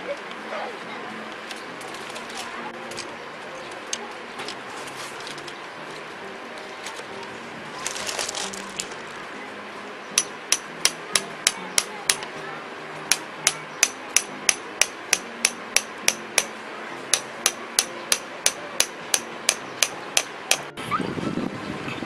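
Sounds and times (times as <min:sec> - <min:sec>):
hammer striking tent peg: 0:10.2 - 0:12.3, 0:13.1 - 0:20.7.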